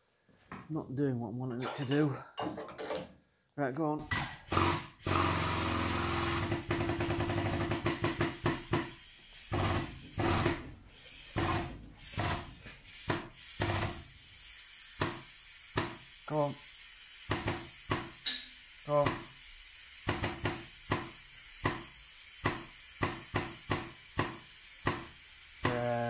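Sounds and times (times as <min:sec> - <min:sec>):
foot pump rasping hiss: 0:06.0 - 0:26.0.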